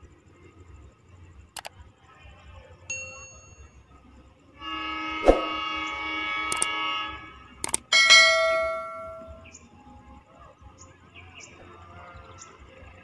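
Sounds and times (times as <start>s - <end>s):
mouse clicks: 7.6s - 7.8s.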